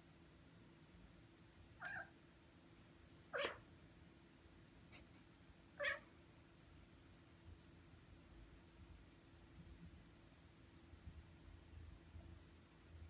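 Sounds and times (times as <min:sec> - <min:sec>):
cat meowing: 0:01.8 - 0:02.1, 0:03.3 - 0:03.7, 0:05.8 - 0:06.1.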